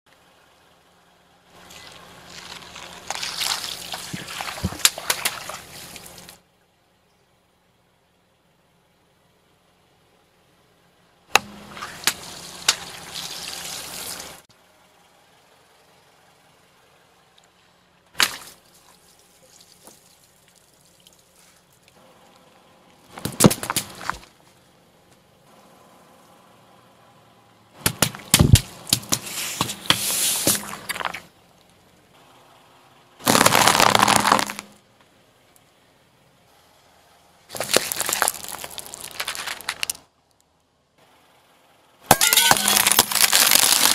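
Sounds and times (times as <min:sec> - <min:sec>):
water splashing and sloshing: 0:01.6 - 0:06.4
water balloons popping: 0:01.7 - 0:06.3, 0:27.8 - 0:31.3, 0:33.2 - 0:34.7, 0:42.1 - 0:43.9
water balloons popping with splash: 0:33.2 - 0:34.7.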